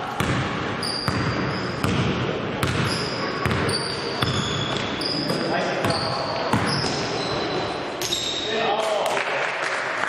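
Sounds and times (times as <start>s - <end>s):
voices echoing in hall: 0.0s - 10.0s
basketball bouncing on court: 0.1s - 8.3s
shoes squeaking on floor: 2.8s - 8.6s.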